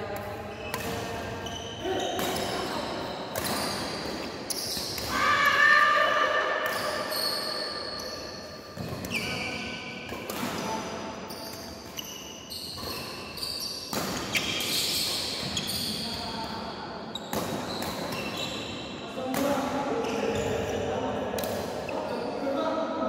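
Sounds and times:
rackets hitting shuttlecock: 0.2 - 1.4, 2.0 - 5.1, 8.8 - 16.0, 17.2 - 18.4.

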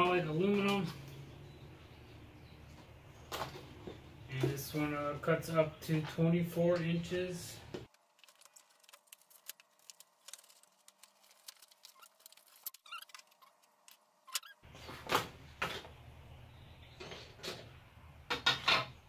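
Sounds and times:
packaging rustling: 7.9 - 14.5.

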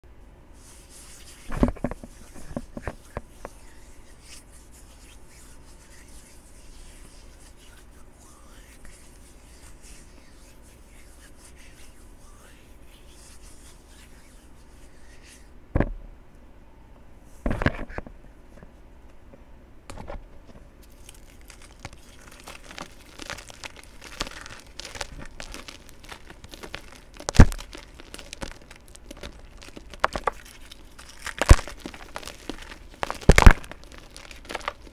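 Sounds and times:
small crackling crumbles: 20.5 - 34.9
chalky blocks crunching: 20.8 - 34.9
chalky blocks rubbing: 20.9 - 34.9.

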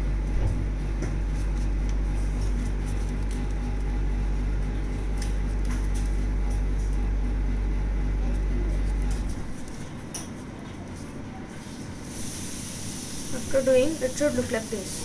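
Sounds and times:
low mechanical hum: 0.0 - 15.0
paper being folded: 0.8 - 7.1, 8.2 - 12.3.

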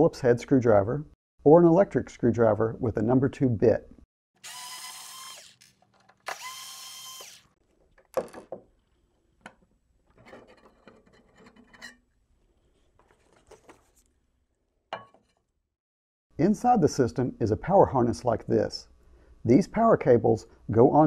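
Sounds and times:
electric screwdriver whirring: 4.4 - 7.6.

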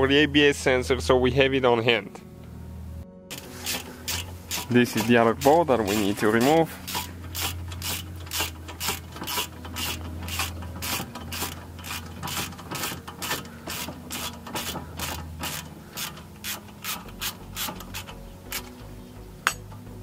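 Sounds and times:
steady low hum: 2.2 - 20.0
hand ratchet clicking: 3.3 - 18.8.

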